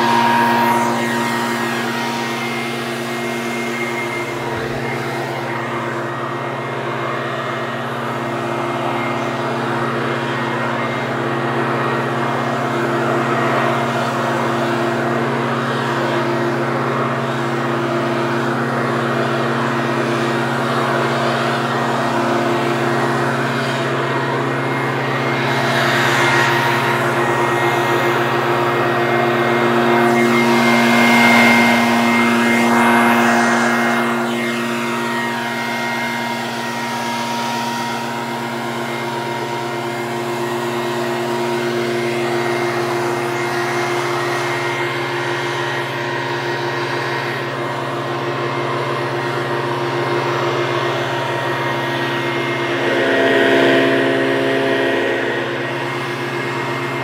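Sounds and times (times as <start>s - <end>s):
leaf blower running: 0.0s - 57.0s.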